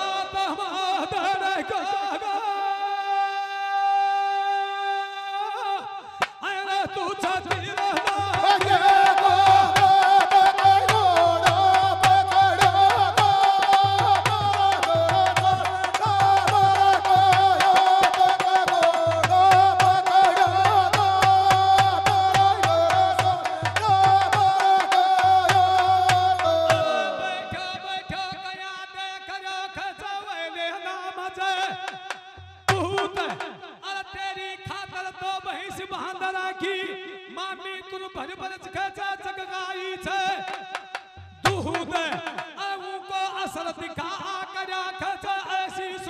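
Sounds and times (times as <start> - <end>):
men singing folk song: 6.3 - 28.4
quick steady drum beat: 7.5 - 26.8.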